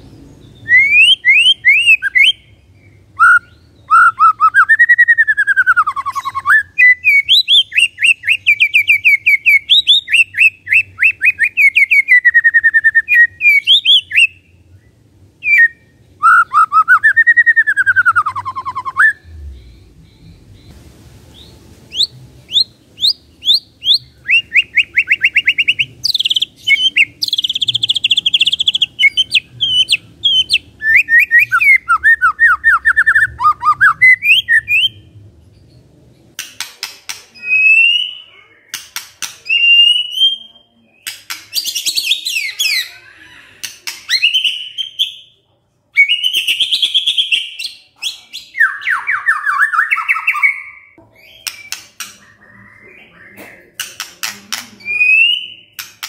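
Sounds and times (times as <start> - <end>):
bird chattering: 21.9 - 35.0.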